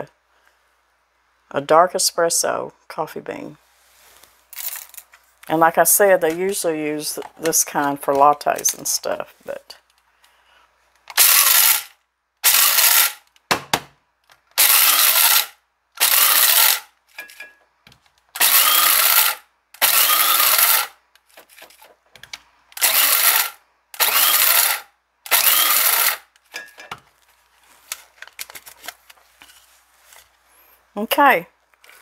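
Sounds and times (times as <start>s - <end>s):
coffee grinder whirring: 11.1s - 13.2s, 14.6s - 16.9s, 18.4s - 20.9s, 22.8s - 26.2s.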